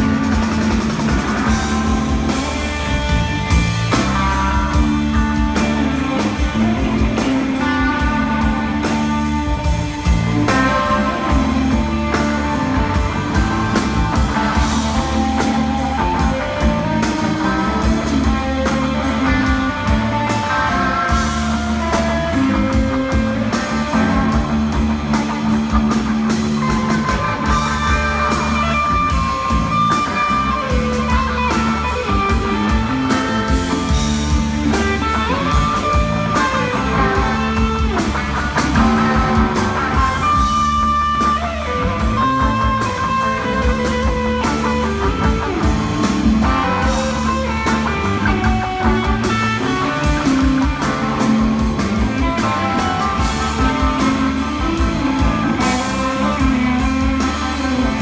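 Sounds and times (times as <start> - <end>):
blues-rock band playing: 0.0 - 58.0
lead electric guitar: 0.0 - 58.0.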